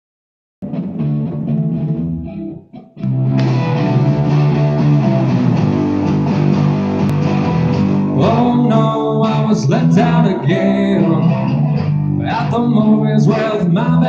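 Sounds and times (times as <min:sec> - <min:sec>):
bass guitar: 0:00.6 - 0:14.0
electric guitar: 0:00.6 - 0:14.0
drum kit: 0:03.3 - 0:08.4.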